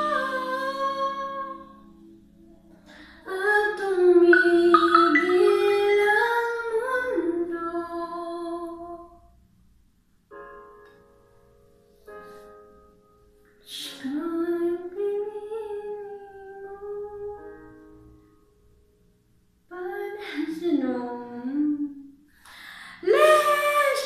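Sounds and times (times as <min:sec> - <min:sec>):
woman singing slow melody: 0:03.2 - 0:09.1, 0:13.7 - 0:17.7, 0:19.7 - 0:22.0, 0:23.0 - 0:24.0.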